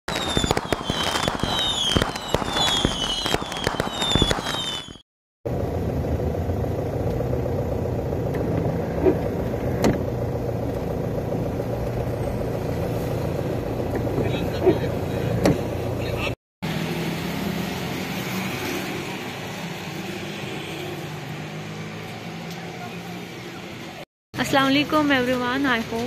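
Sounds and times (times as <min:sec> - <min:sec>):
car driving on wet road: 0:05.5 - 0:19.2.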